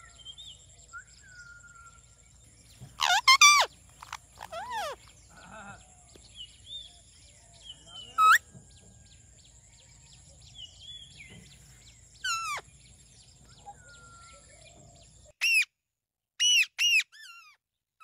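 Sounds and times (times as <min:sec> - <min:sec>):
parakeets screeching: 0:03.0 - 0:05.7, 0:08.1 - 0:08.4, 0:12.2 - 0:12.7.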